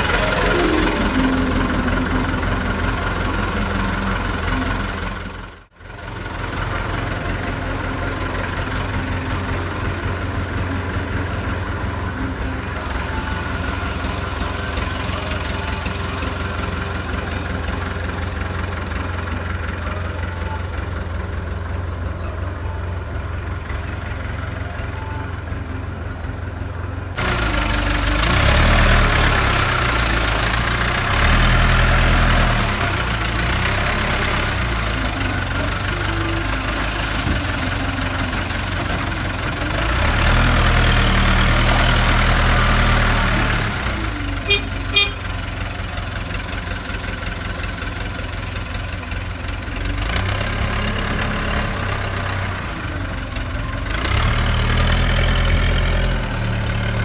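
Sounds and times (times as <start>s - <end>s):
diesel engine running: 0.0s - 57.0s.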